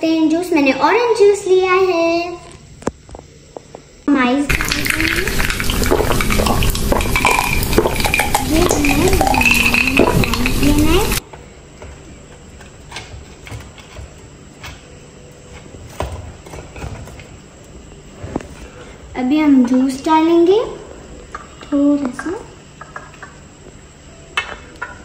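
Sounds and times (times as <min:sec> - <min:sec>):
spoon scooping ice into glass: 0:04.5 - 0:11.2.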